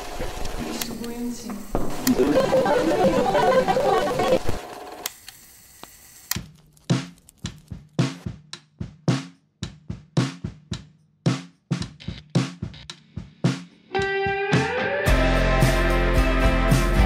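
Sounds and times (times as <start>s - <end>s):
full band with steady bass: 14.0s - 17.0s.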